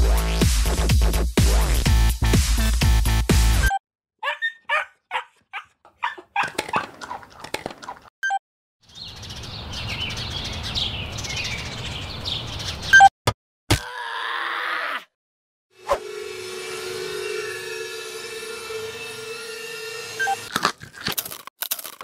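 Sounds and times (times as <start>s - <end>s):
dog whimpering yips: 4.2s - 6.8s
birds chirping: 8.8s - 13.1s.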